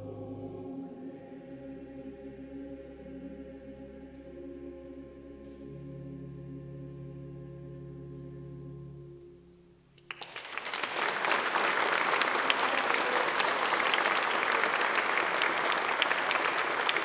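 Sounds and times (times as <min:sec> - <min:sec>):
sustained music chord: 0:00.0 - 0:10.0
audience applauding: 0:10.1 - 0:17.0.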